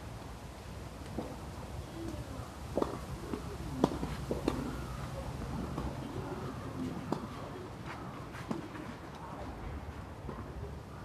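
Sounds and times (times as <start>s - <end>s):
tennis balls struck by rackets: 1.1s - 1.4s, 2.1s - 9.0s.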